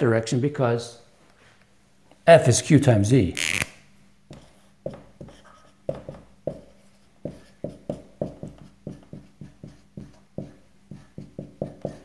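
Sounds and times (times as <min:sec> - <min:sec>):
marker writing on a whiteboard: 0:04.3 - 0:12.0.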